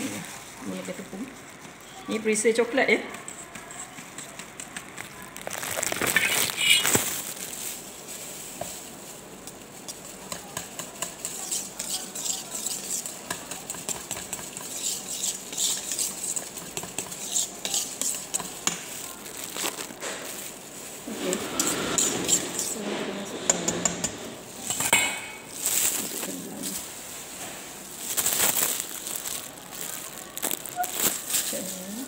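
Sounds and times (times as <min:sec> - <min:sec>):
utensil scraping metal pot: 0:09.8 - 0:18.8, 0:21.0 - 0:26.9.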